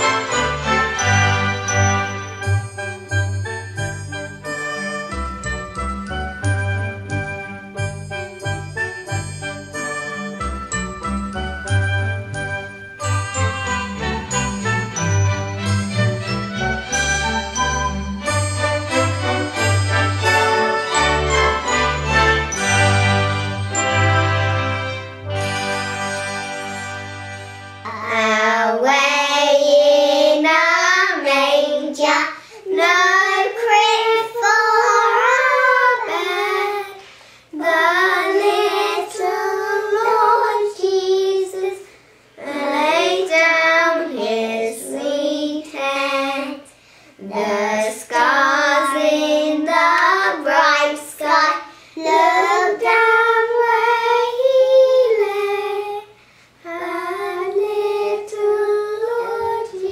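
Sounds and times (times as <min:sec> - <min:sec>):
girls singing together: 0:27.9 - 0:41.8, 0:42.4 - 0:59.9.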